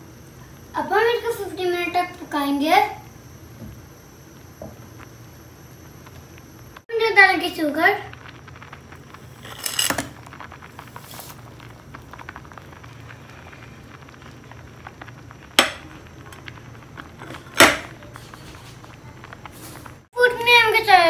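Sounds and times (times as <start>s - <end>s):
sugar sliding into pot: 8.1s - 20.1s.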